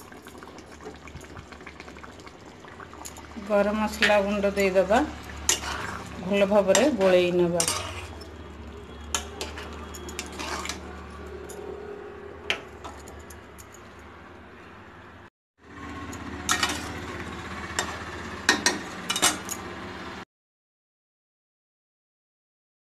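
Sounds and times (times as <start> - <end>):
spatula scraping metal pan: 5.2 - 11.2, 16.5 - 17.0.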